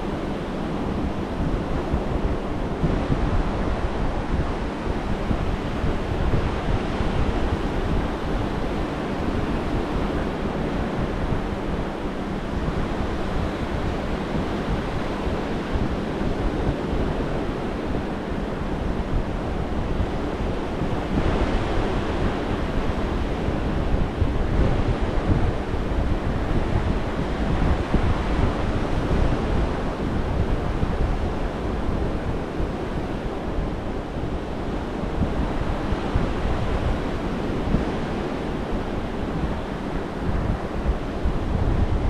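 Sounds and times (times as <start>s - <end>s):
wind rumbling on microphone: 0.0s - 42.0s.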